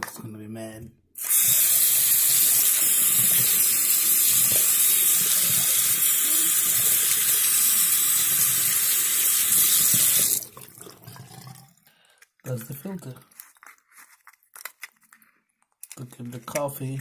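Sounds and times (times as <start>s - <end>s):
tap water running into sink: 1.2s - 11.8s.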